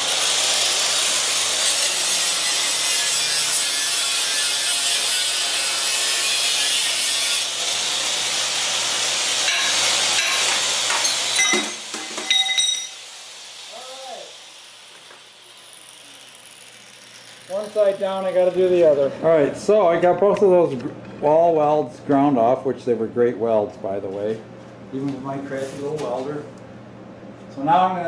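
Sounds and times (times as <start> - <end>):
angle grinder grinding metal: 0.0 - 19.3
sharp metal knocks: 9.5 - 13.0.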